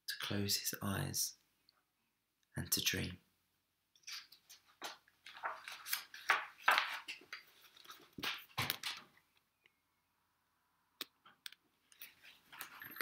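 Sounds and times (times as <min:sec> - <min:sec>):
book pages rustling: 0:04.0 - 0:09.1.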